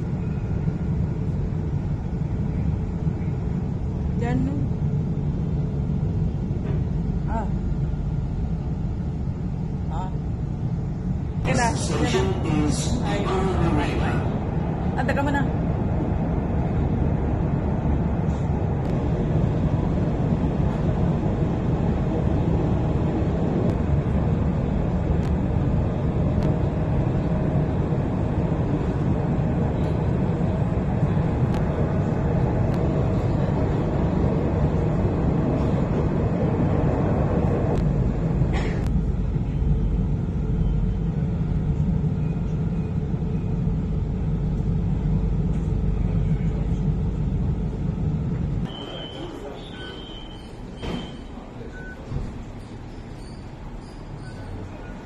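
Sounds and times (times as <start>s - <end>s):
train carriage rumble: 0.0s - 55.0s.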